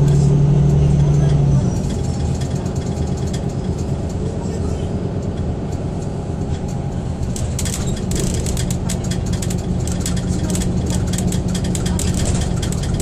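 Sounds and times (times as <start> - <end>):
bus engine drone: 0.0 - 13.0
road noise: 0.0 - 13.0
quick clicks and rattles: 7.2 - 13.0.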